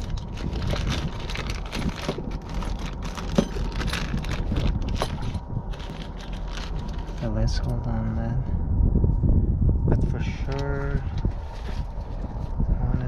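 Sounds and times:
plastic bag crinkling: 0:00.0 - 0:07.3
low rumble: 0:00.0 - 0:13.0.

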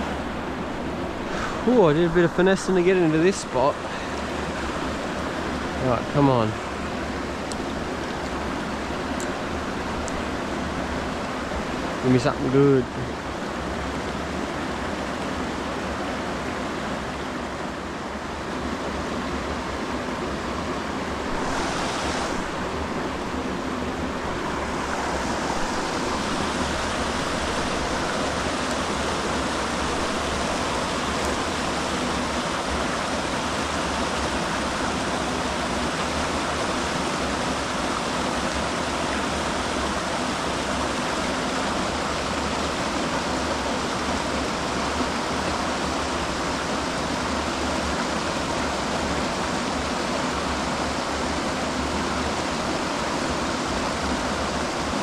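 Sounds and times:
stream water rushing: 0:00.0 - 0:55.0.

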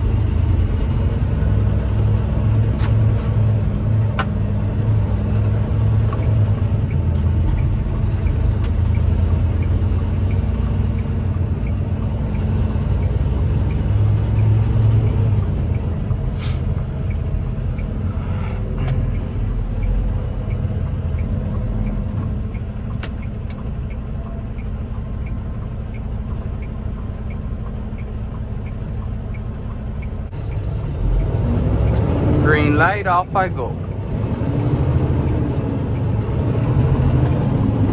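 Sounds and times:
diesel truck engine rumbling: 0:00.0 - 0:37.9
faint regular ticking: 0:06.0 - 0:18.1, 0:18.7 - 0:32.0.

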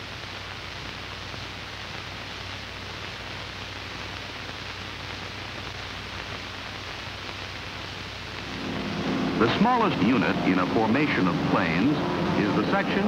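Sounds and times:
film soundtrack hiss: 0:00.0 - 0:13.0
low hum: 0:08.4 - 0:13.0.

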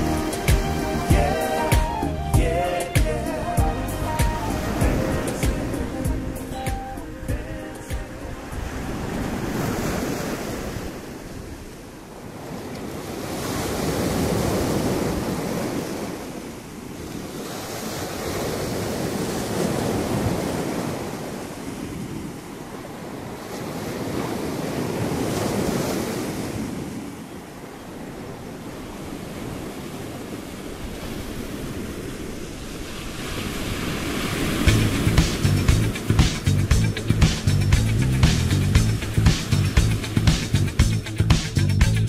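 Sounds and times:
surf washing up pebble shore: 0:00.0 - 0:02.1, 0:02.7 - 0:41.6
wind buffeting microphone: 0:30.8 - 0:41.1.

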